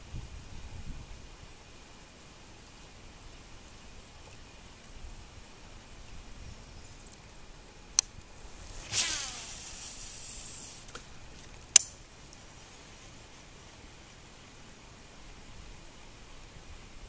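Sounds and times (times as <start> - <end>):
fishing line whizzing off spool: 8.4 - 11.1.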